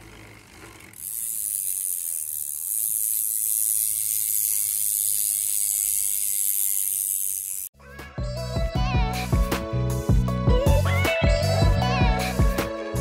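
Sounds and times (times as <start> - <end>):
bike freehub ratcheting buzz: 0.0 - 7.7.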